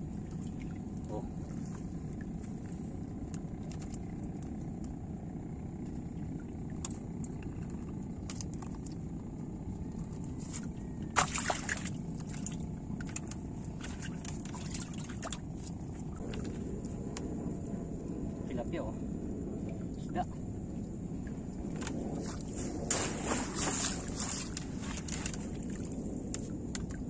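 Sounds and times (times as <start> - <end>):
water trickling and splashing: 0.0 - 4.6, 10.4 - 17.0, 21.1 - 27.0
low rumble: 0.0 - 27.0
loud splash: 11.2 - 11.9, 22.9 - 24.4.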